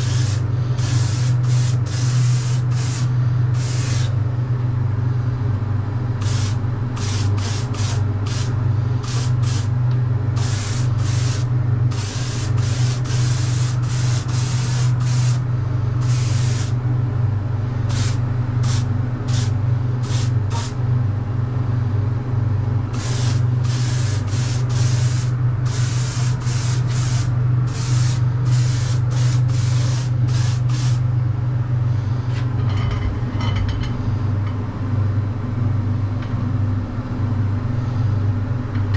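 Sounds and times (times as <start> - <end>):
spray gun hissing: 0.0 - 4.2, 6.2 - 9.7, 10.4 - 15.4, 16.0 - 16.8, 17.9 - 20.8, 22.9 - 31.0
steady low hum: 0.0 - 38.9.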